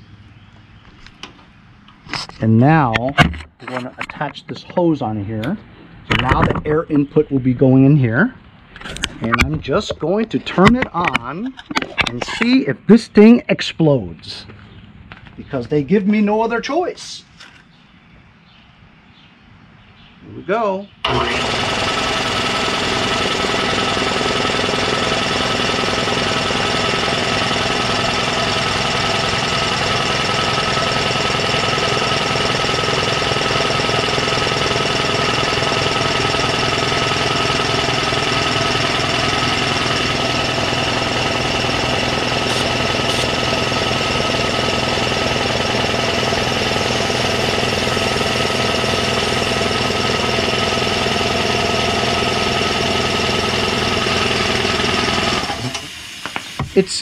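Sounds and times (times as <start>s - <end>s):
air compressor running: 21.0s - 56.8s.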